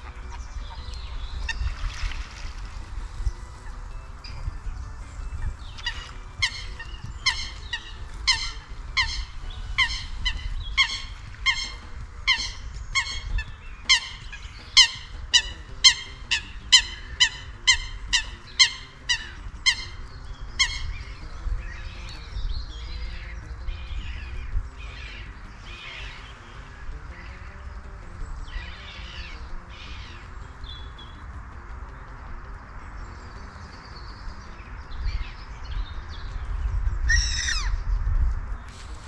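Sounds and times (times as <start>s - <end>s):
goose honking: 0.0s - 22.1s
low steady rumble: 0.0s - 39.0s.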